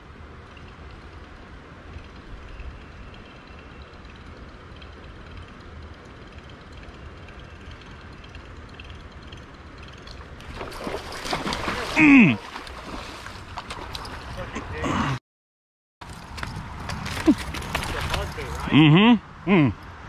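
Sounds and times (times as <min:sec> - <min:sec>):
outdoor low rumble and hiss: 0:00.0 - 0:15.2, 0:16.0 - 0:20.0
fish splash on water surface: 0:10.5 - 0:13.9.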